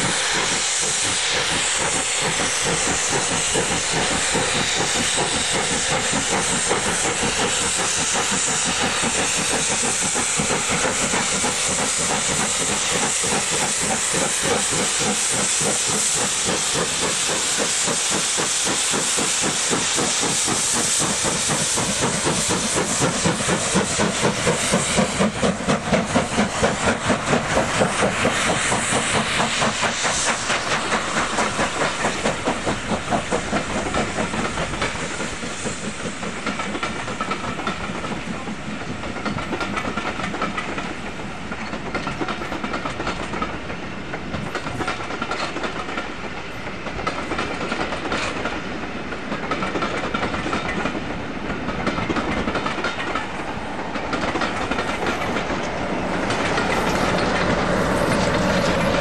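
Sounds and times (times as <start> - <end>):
locomotive exhaust chuffs: 0.0 - 38.6
steam hiss: 0.0 - 59.0.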